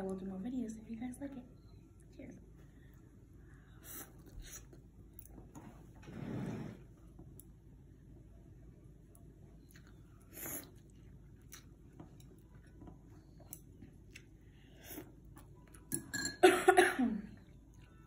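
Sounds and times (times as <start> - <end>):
woman's cough-like outburst: 16.4 - 17.3.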